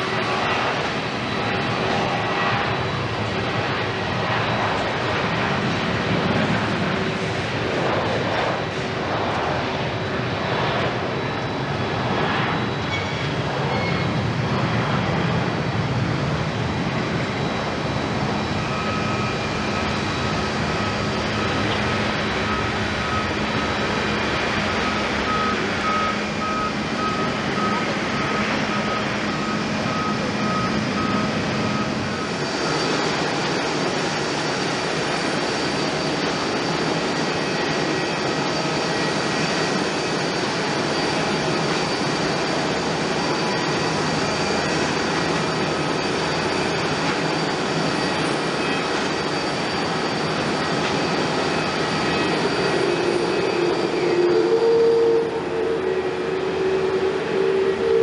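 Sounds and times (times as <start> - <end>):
jet engine noise: 0.0 - 58.0
thin high whine: 45.6 - 58.0.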